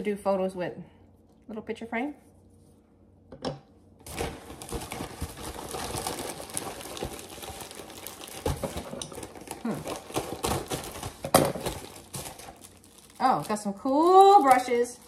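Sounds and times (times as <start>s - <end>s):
plastic packaging crinkling: 4.0s - 15.0s.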